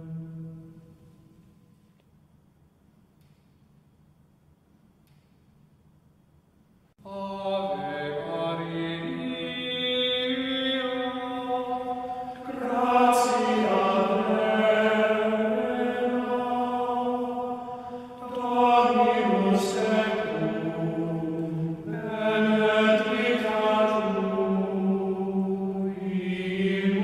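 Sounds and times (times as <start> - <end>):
hymn chanted in long notes: 0.0 - 1.0, 7.0 - 27.0.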